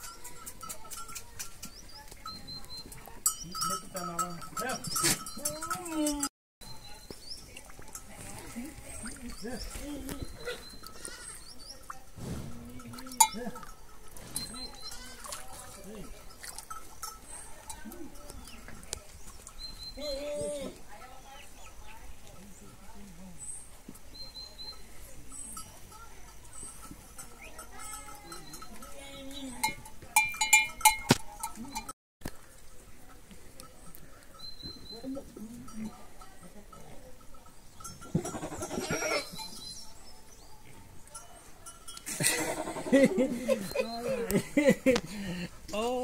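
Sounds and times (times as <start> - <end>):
small birds chirping: 0.0 - 5.6, 6.6 - 12.4, 14.2 - 15.2, 15.9 - 29.5, 33.6 - 36.2, 38.9 - 41.6
goats bleating: 38.1 - 39.3.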